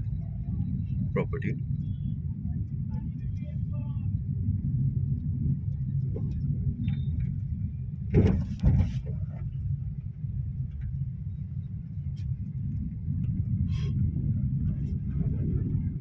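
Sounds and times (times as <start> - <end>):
car engine and tyres rumbling: 0.0 - 16.0.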